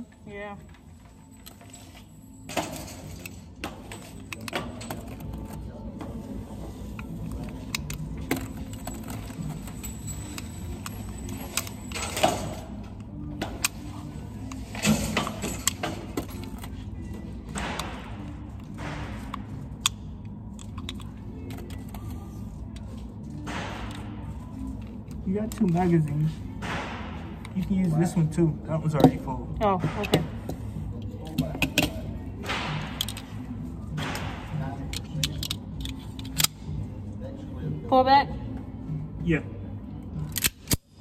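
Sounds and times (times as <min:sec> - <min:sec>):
cartridges clicking into magazine: 0:32.9 - 0:33.3, 0:34.9 - 0:36.7, 0:40.2 - 0:41.0.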